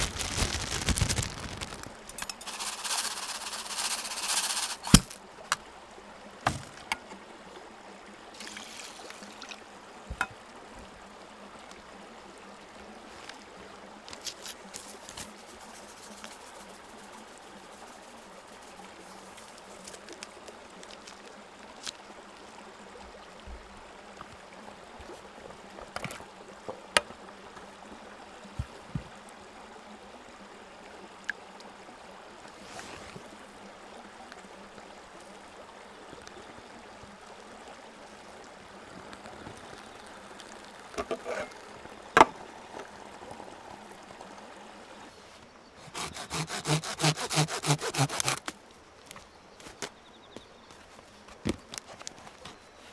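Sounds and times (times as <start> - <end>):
match being struck: 0.0 - 5.2
faint hiss: 0.0 - 46.8.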